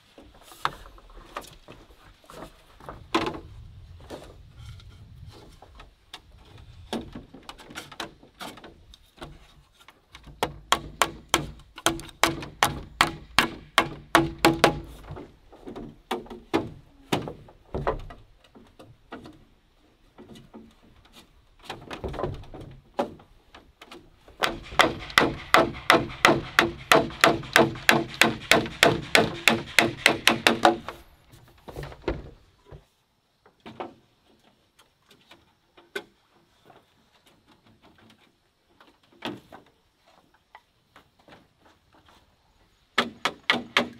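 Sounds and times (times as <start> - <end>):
quick strikes on bamboo frame: 10.3 - 15.3, 24.4 - 31.1, 43.0 - 43.9.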